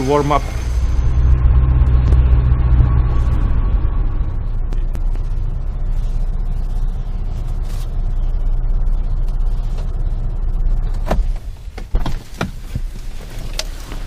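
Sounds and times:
car engine idling: 0.0 - 14.0
sharp clicks and knocks: 4.7 - 5.5.

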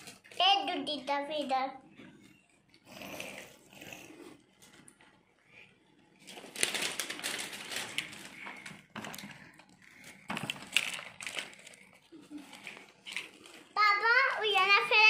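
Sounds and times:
toy packaging rustling: 6.2 - 15.0.

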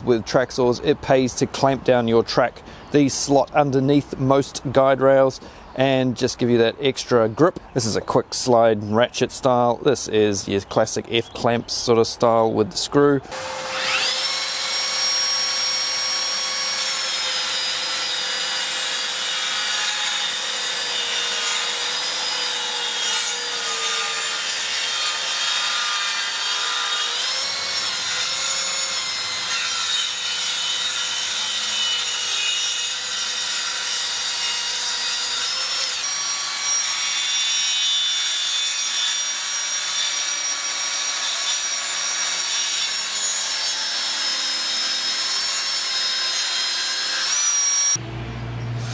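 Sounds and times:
saw blade rasping through timber: 13.3 - 48.0
track saw motor and blade whine: 13.3 - 48.0.

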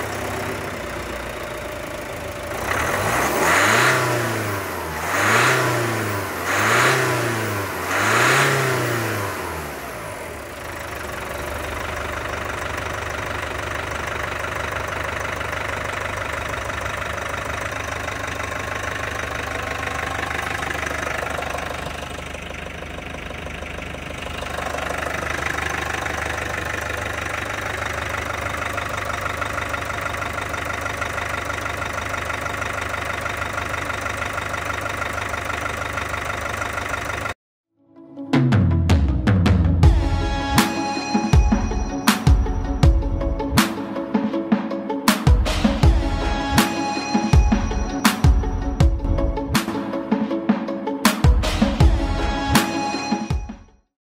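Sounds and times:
diesel engine revving and idling: 0.0 - 37.4, 45.4 - 49.6, 51.3 - 52.8.

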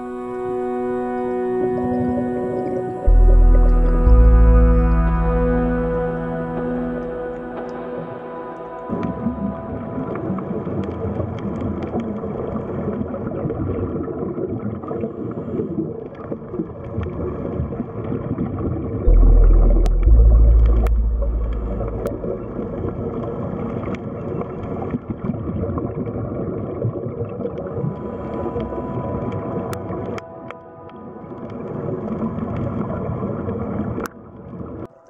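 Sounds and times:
underwater bubbling wash: 1.8 - 34.9
deep low rumble: 3.1 - 12.1, 19.1 - 23.9
faint held tones: 19.1 - 23.8.

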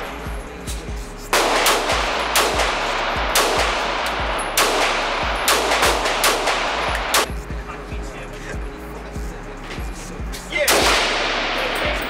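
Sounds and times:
handgun shots echoing indoors: 0.0 - 7.4, 10.7 - 12.0.

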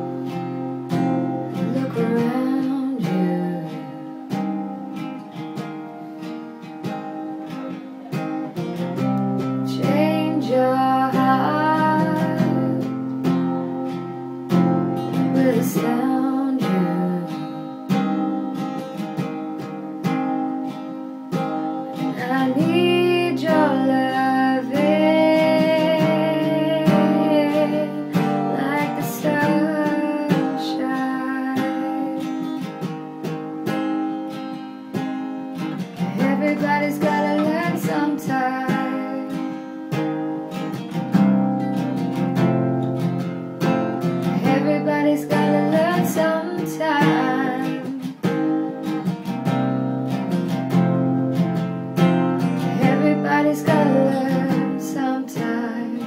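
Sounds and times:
strummed acoustic guitar: 0.0 - 56.0
person singing: 1.0 - 4.5, 7.3 - 13.3, 15.0 - 18.6, 22.0 - 32.7, 35.8 - 40.8, 44.2 - 49.1, 52.5 - 56.0.

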